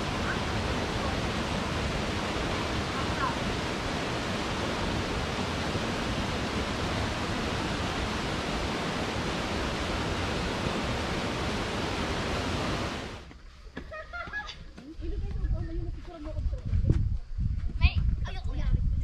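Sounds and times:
steady rushing noise: 0.0s - 13.3s.

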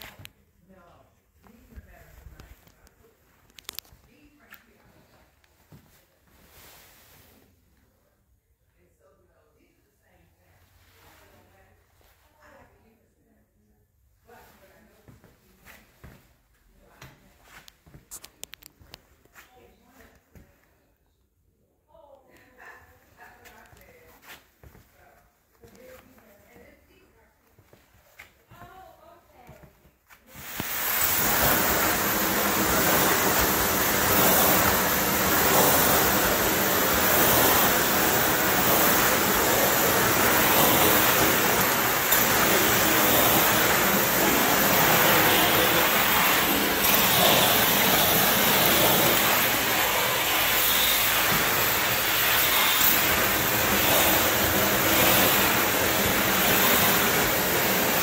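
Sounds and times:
extraction wand spray and suction: 30.3s - 58.0s.

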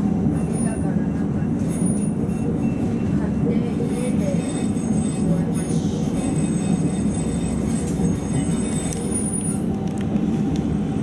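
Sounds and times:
tram rumble: 0.0s - 11.0s.

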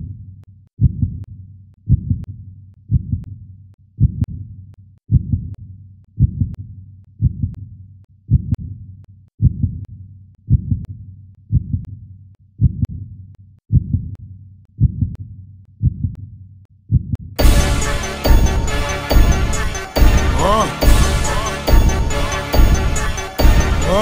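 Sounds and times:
heartbeat thumps: 1.9s - 2.3s, 2.9s - 3.3s, 4.0s - 4.4s, 5.1s - 5.5s, 6.2s - 6.6s, 7.2s - 7.6s, 9.4s - 9.8s, 10.5s - 10.9s, 11.5s - 11.9s, 12.6s - 13.0s, 13.7s - 14.2s, 14.8s - 15.2s, 15.8s - 16.2s, 16.9s - 24.0s.

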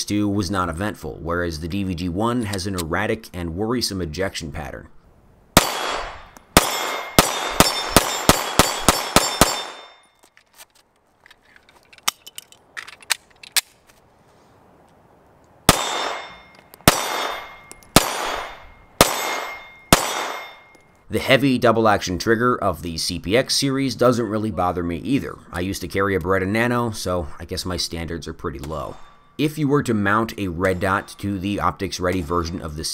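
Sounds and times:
pistol shots with echo: 5.6s - 10.0s, 15.7s - 20.7s.

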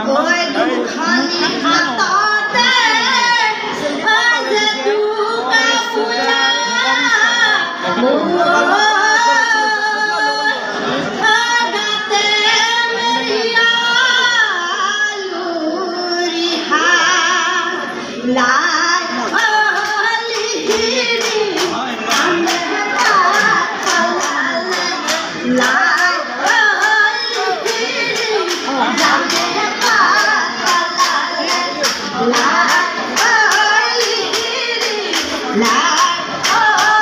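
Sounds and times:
women singing in chorus: 0.0s - 37.0s
clapping beat: 19.3s - 37.0s.

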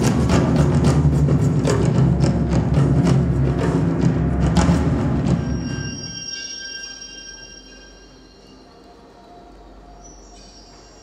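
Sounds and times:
live music with heavy drumming: 0.0s - 6.1s
high held tones: 5.2s - 11.0s.

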